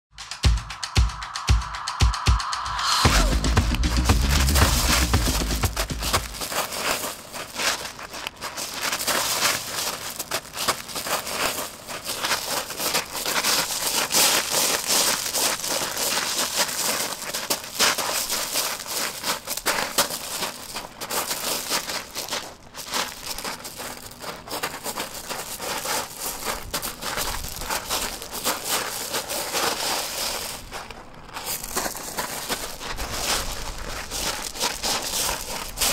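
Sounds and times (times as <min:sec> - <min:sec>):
footsteps crunching on gravel: 0:04.0 - 0:35.9.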